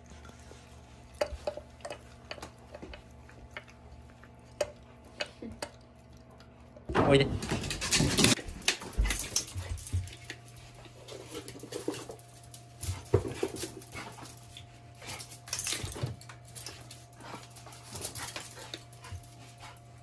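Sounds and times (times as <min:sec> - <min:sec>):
claws and leash clicking on tile: 0:07.7 - 0:19.8.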